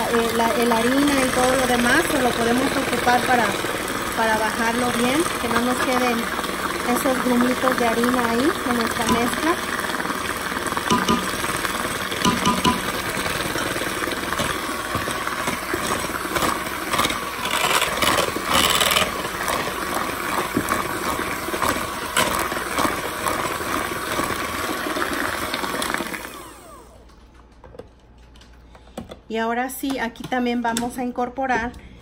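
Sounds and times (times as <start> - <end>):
electric hand mixer running: 0.0 - 27.1
beaters clicking against bowl: 12.2 - 12.8.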